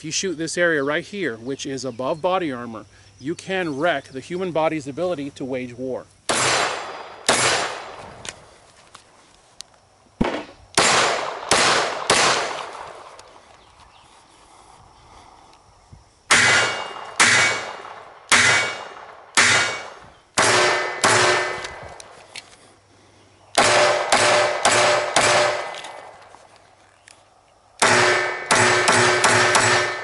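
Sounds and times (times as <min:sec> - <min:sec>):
pistol gunshots: 0:06.3 - 0:08.0, 0:10.2 - 0:13.2, 0:16.3 - 0:21.8, 0:23.6 - 0:26.1, 0:27.8 - 0:30.0.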